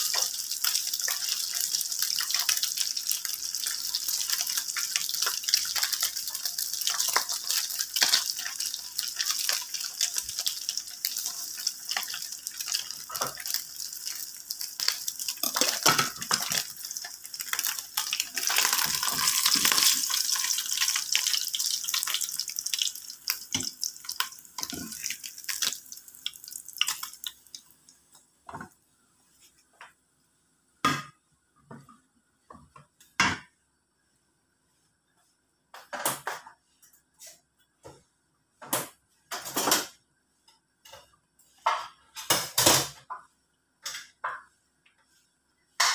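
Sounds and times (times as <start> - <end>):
meat sizzling in frying pan: 0.0 - 27.7.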